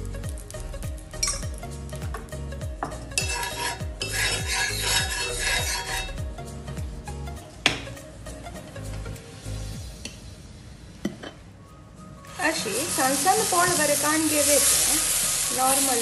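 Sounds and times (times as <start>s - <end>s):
water sizzling on hot pan: 0.0s - 6.2s, 12.2s - 16.0s
background music with beat: 0.0s - 10.6s
spoon scraping iron pan: 3.2s - 6.2s.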